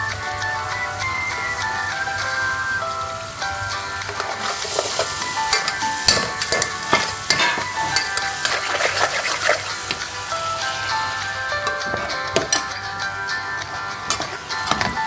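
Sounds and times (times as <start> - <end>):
background music: 0.0 - 15.0
onions sizzling in a pot: 0.0 - 15.0
spoon scraping a pot: 4.1 - 10.0, 11.6 - 12.7, 14.1 - 15.0.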